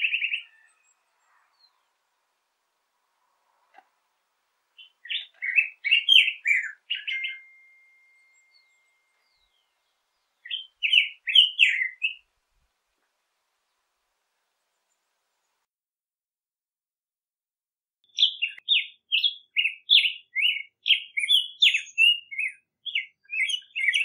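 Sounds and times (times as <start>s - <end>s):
bird singing warbled phrases: 0.0s - 2.0s, 4.8s - 12.3s, 18.0s - 24.0s.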